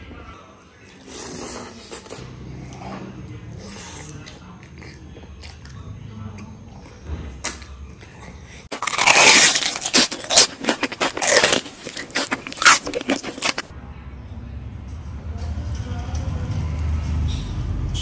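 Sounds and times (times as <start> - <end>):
loud crunching and chewing: 1.0 - 13.7.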